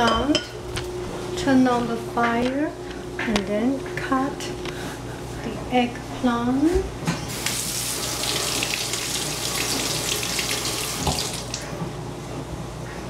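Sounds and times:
kitchen tap running: 7.3s - 11.8s.

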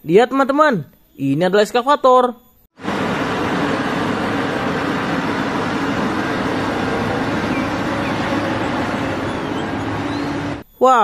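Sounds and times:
excavator diesel engine running: 2.8s - 10.6s.

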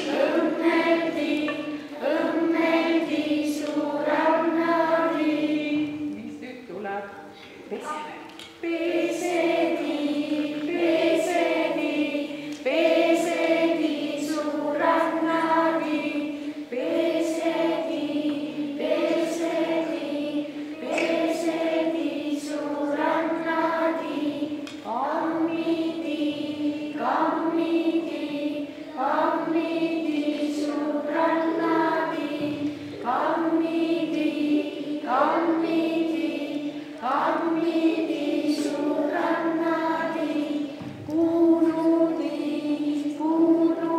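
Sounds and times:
group of voices chanting: 15.3s - 22.0s.

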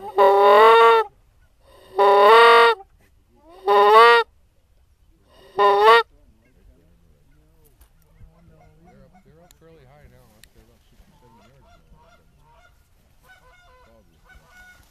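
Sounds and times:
goose honks: 0.0s - 1.1s, 1.7s - 2.9s, 3.6s - 4.3s, 5.4s - 6.6s, 11.3s - 14.9s.

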